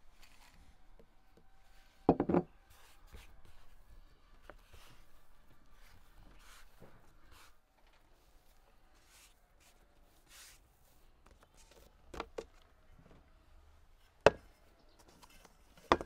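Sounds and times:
loud clattering knock on wooden table: 0:02.1 - 0:02.5.

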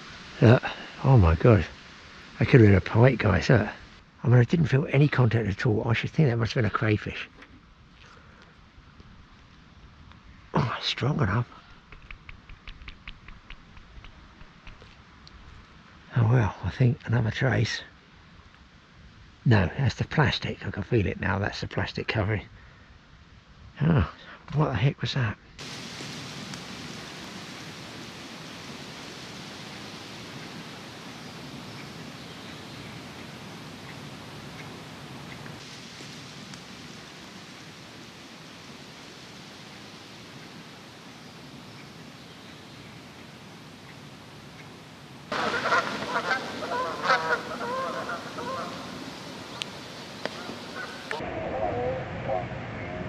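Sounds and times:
rushing noise: 0:00.0 - 0:04.2, 0:25.6 - 0:53.0
outdoor background hiss: 0:00.0 - 0:53.0
faint ticks: 0:11.6 - 0:15.8, 0:26.4 - 0:26.8, 0:30.3 - 0:35.6, 0:36.4 - 0:36.7, 0:43.1 - 0:44.8, 0:49.5 - 0:51.2
geese honking: 0:45.3 - 0:52.6.

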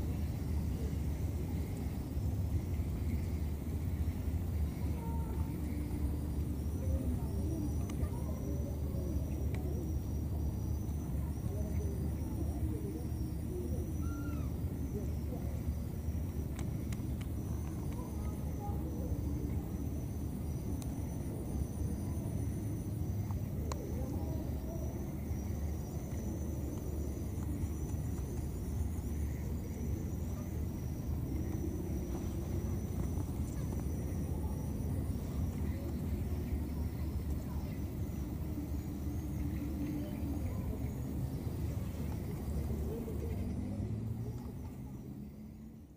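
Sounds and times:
faint high-pitched pulsing: 0:00.0 - 0:45.9
steady low rumble: 0:00.0 - 0:45.9
short soft calls: 0:13.8 - 0:14.7.

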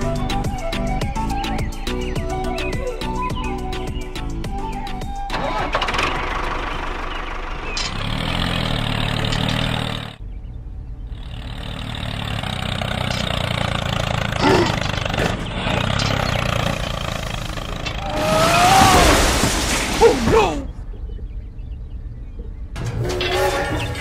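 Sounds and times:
tractor engine chugging: 0:05.2 - 0:10.2, 0:11.2 - 0:18.0.

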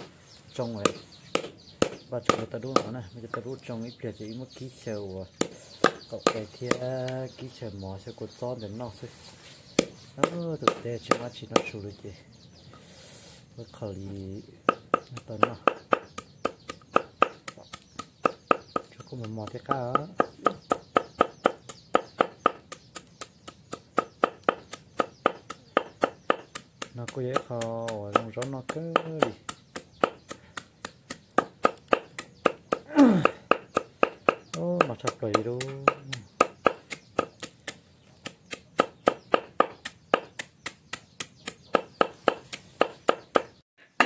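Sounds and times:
knife chopping on wooden block: 0:00.8 - 0:03.0, 0:05.4 - 0:06.9, 0:09.8 - 0:11.7, 0:14.7 - 0:43.6.

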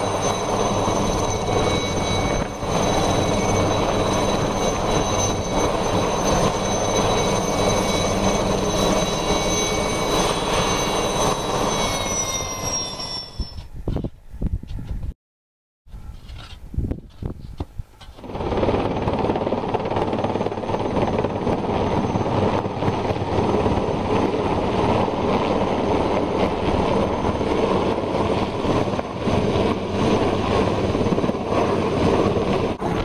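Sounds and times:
helicopter rotor and engine: 0:00.0 - 0:13.7, 0:18.0 - 0:33.0.

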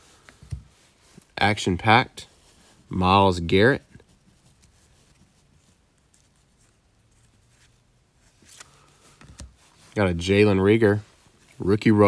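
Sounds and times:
trading cards clicking and rustling: 0:08.4 - 0:09.6.

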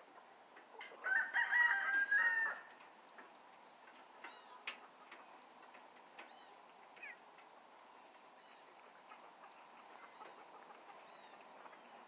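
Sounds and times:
chickens clucking and chirping: 0:00.0 - 0:12.0
rooster crowing: 0:01.0 - 0:02.8.

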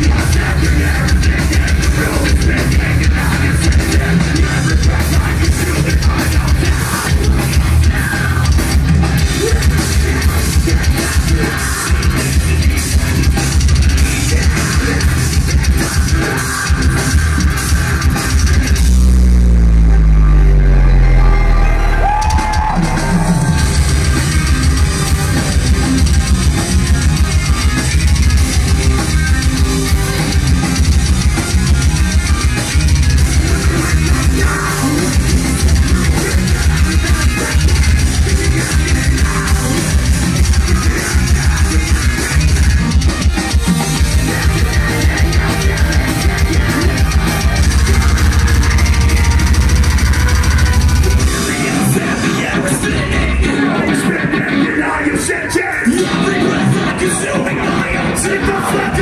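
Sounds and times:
heavy metal band playing live: 0:00.0 - 0:59.0
rapid pounding kick drum: 0:22.3 - 0:51.4.

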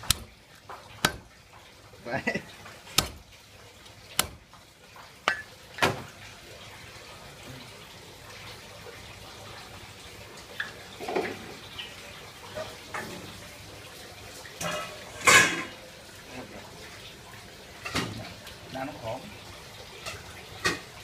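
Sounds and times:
cleaver knocking on chopping block: 0:01.0 - 0:01.2, 0:03.0 - 0:03.2, 0:04.2 - 0:04.4
kitchenware clattering: 0:14.6 - 0:15.8.

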